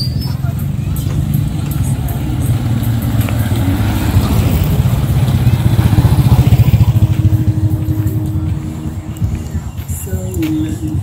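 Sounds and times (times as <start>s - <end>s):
motorbike engine passing by: 0.4s - 9.0s.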